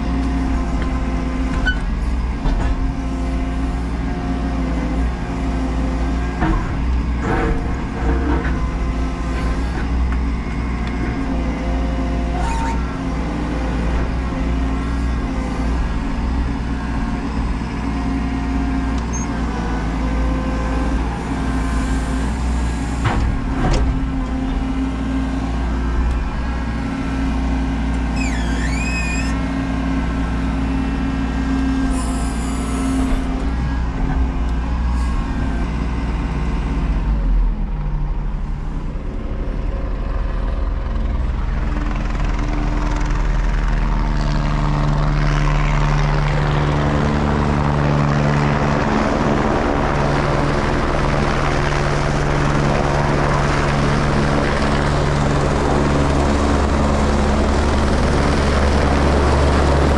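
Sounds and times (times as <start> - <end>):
excavator engine and hydraulics: 0.0 - 59.9
high squeal: 12.3 - 13.0, 19.1 - 19.4, 28.1 - 29.4, 31.9 - 33.1.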